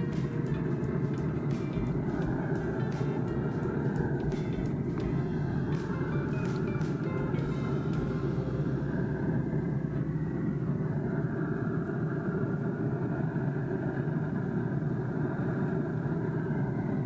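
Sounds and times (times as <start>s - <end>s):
smoker fan humming: 0.0s - 17.0s.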